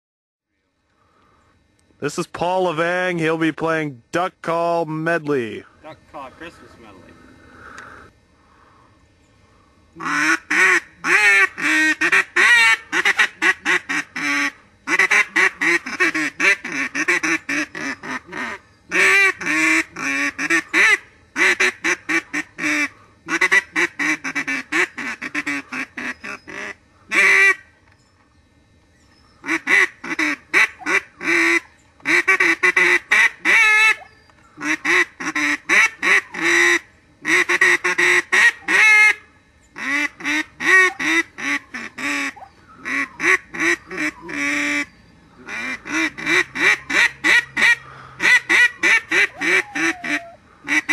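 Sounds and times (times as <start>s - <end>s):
duck call playing melodies: 10.0s - 27.7s, 29.4s - 39.2s, 39.8s - 50.9s.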